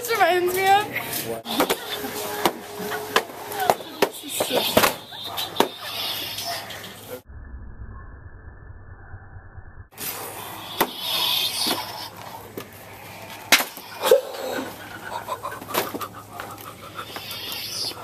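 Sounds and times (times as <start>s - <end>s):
low hum: 6.8s - 10.7s.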